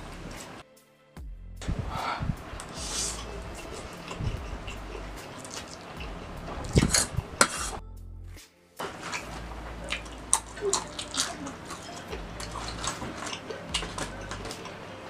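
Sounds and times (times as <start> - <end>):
lip smacking: 1.6 - 7.8, 8.8 - 14.9
slurping noodles: 1.9 - 7.8, 8.8 - 14.8.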